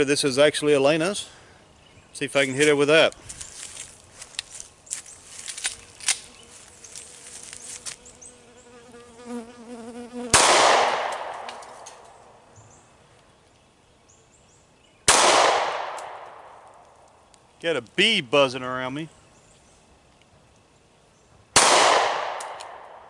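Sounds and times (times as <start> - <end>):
bee buzzing: 5.6 - 11.1
pistol shots with echo: 10.4 - 11.5, 15.1 - 16.5, 21.6 - 23.0
pistol handling clicks: 21.6 - 22.9.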